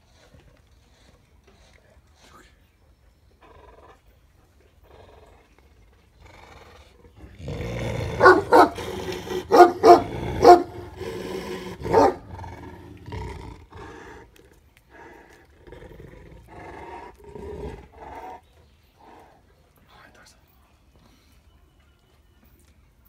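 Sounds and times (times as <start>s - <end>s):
large dog growling: 3.4s - 19.4s
dog barking loudly: 8.2s - 11.2s, 11.8s - 12.3s.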